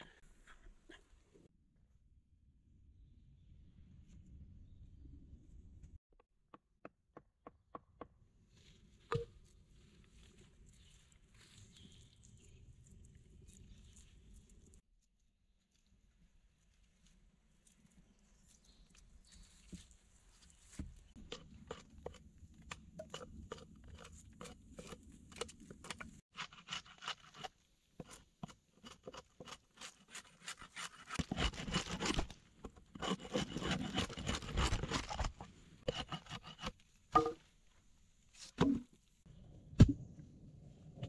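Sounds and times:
hatchet shaving wood: 21.2 - 36.8.

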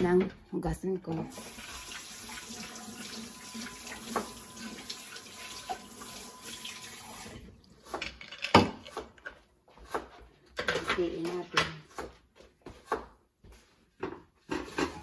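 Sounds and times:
kitchen tap running: 1.1 - 7.8.

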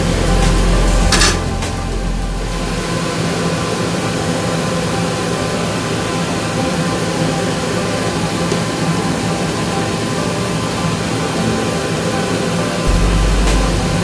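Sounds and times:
deep rumble: 0.0 - 3.3, 12.9 - 14.0
ship machinery and ventilation drone: 0.0 - 14.0.

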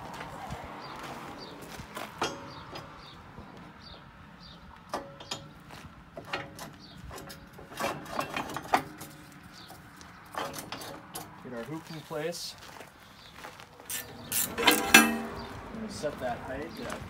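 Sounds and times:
metal knocks and clanks: 2.1 - 3.2, 4.9 - 11.4, 13.9 - 15.7
faint metallic ring: 14.3 - 15.4.

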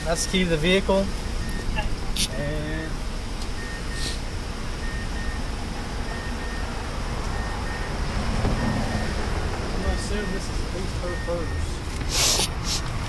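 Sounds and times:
low outdoor rumble: 0.0 - 13.0
faint high beep: 3.6 - 4.2, 4.8 - 5.5, 6.1 - 8.0, 9.8 - 11.7.

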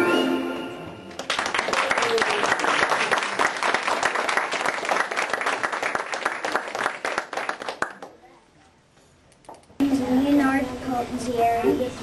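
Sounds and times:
audience applauding: 1.1 - 8.2.

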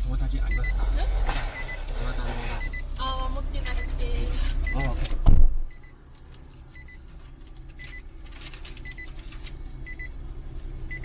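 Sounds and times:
car idling hum: 0.0 - 11.0
car warning chime double beeps: 0.5 - 0.8, 1.5 - 6.1, 6.7 - 7.1, 9.8 - 10.2
paper rustling: 8.2 - 9.7.

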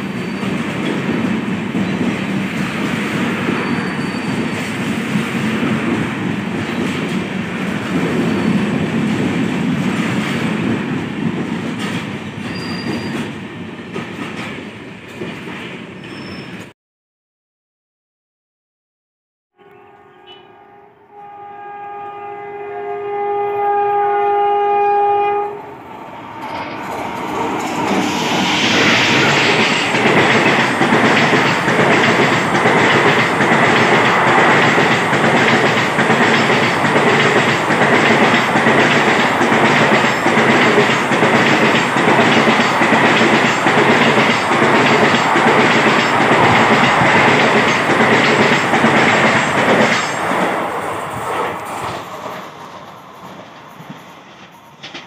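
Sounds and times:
passenger train passing: 0.0 - 16.7, 19.6 - 55.0
locomotive horn: 19.6 - 25.8.

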